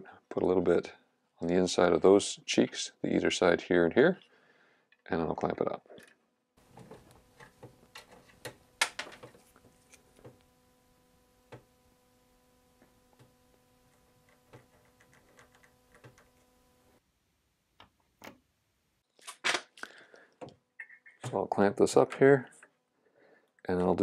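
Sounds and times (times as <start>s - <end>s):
faint steady hum: 6.6s - 19.1s
needle clicking and scratching wood: 13.1s - 16.6s.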